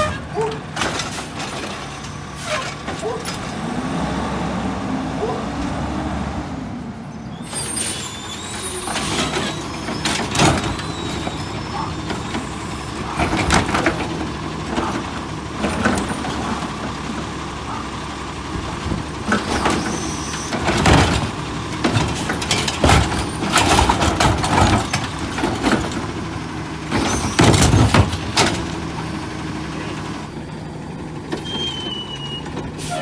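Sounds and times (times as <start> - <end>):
trash cart banging and clattering: 0.0 - 3.9, 7.4 - 29.2
garbage truck running: 0.0 - 33.0.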